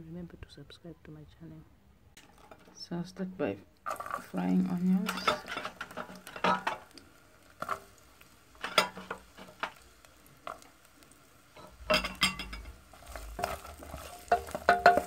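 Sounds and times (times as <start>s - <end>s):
onions sizzling in oil: 3.8s - 15.0s
wooden spoon stirring in pot: 3.8s - 15.0s.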